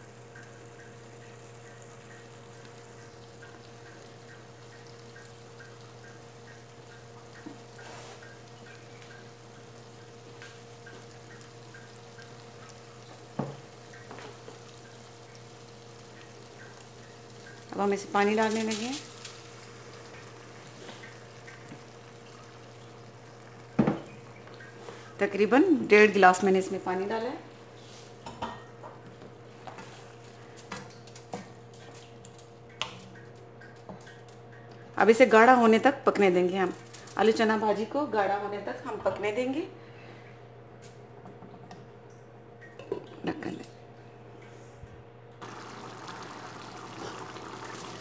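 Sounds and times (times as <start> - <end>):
curry cooking in a pan: 0.0 - 33.0, 45.4 - 48.0
faint steady hum: 0.0 - 48.0.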